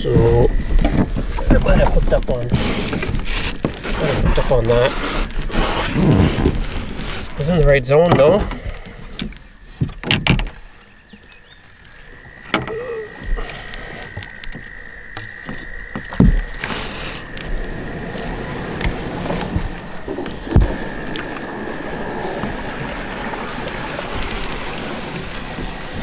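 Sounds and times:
water washing: 0.0 - 8.8, 11.9 - 26.0
dull knocks against canoe hull: 14.1 - 16.7.

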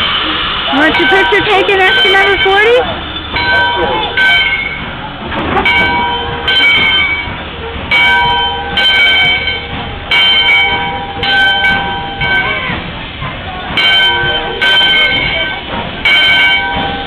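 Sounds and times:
locomotive bell clanging: 0.7 - 17.0.

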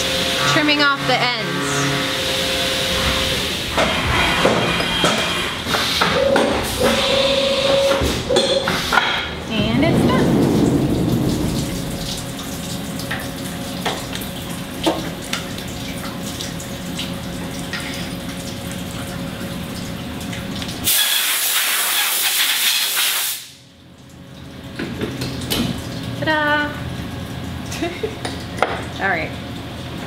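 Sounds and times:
machine-shop hum: 0.0 - 21.7.

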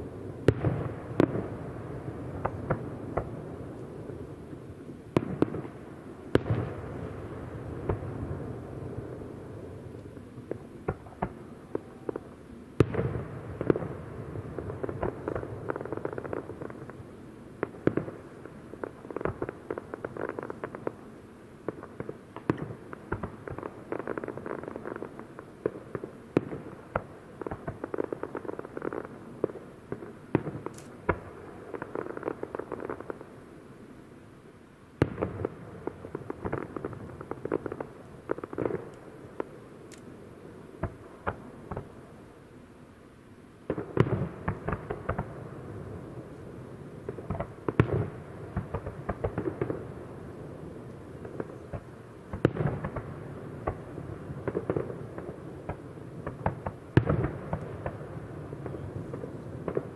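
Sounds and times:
fireworks crackling: 0.0 - 59.9
heavy firework bangs: 0.4 - 3.6.

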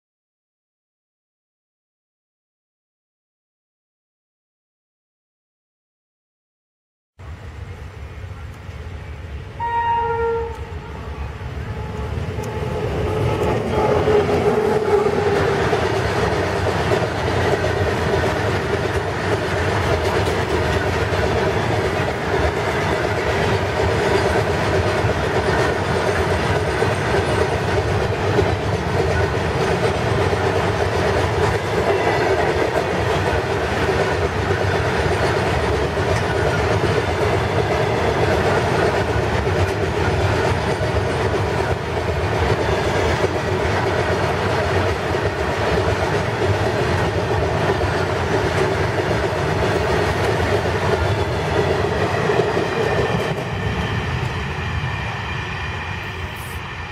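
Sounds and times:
locomotive horn blast: 9.5 - 12.8
wheels clacking over rails: 12.4 - 54.2.

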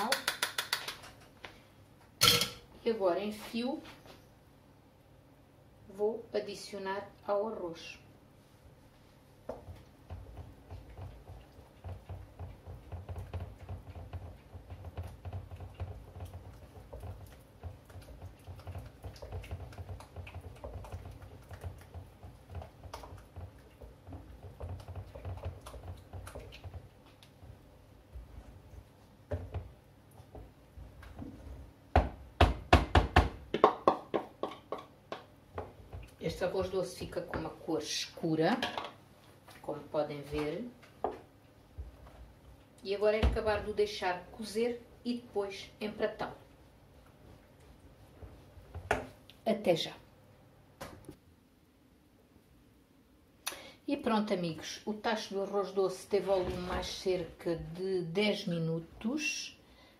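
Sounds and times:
spoon stirring and scraping pot: 9.6 - 31.8.

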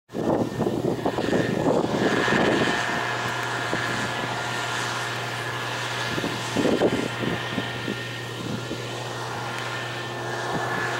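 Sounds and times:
combine harvester engine droning: 0.1 - 10.9
wind buffeting microphone: 0.1 - 10.9.

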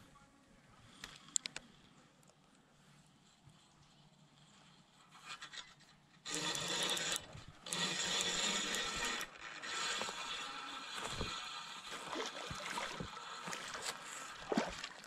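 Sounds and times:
fishing reel gears whirring: 6.2 - 15.0.

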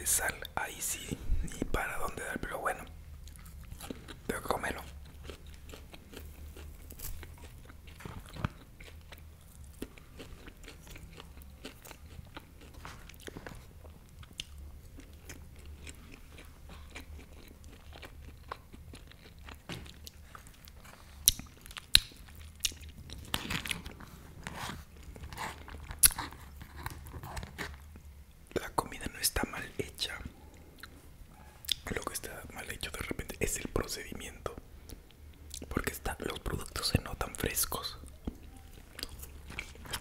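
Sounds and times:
chewing steak: 3.2 - 28.0, 30.0 - 33.8, 37.9 - 40.0
wet mouth clicks: 31.6 - 32.0.

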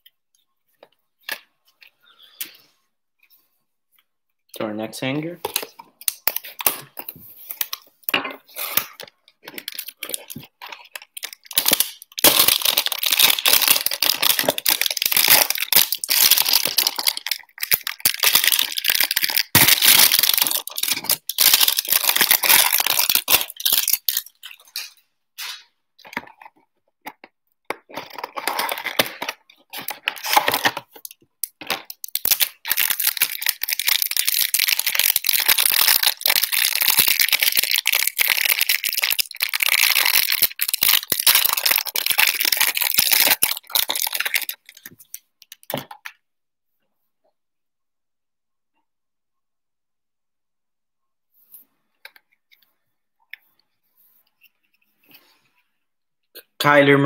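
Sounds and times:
cellophane wrapper crinkling: 5.4 - 46.2
wrapper tearing: 8.5 - 26.5, 27.8 - 45.9.

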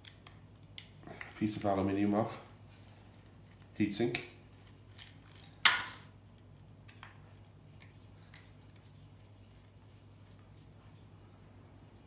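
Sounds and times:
faint clicks of parts handled: 0.0 - 9.0
heatsink snapping off board: 5.6 - 6.0.

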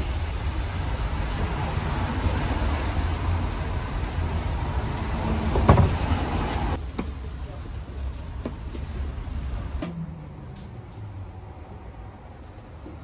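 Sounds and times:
thump: 5.5 - 6.0.

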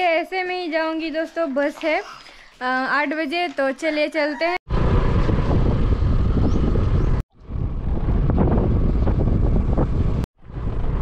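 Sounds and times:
wind buffeting microphone: 4.7 - 11.0.

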